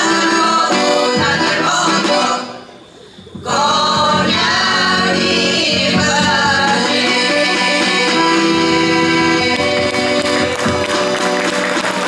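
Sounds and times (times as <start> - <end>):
women's choir singing folk song: 0.0 - 2.6, 3.3 - 11.4
accordion: 0.0 - 12.0
drum: 3.2 - 7.3, 9.6 - 12.0.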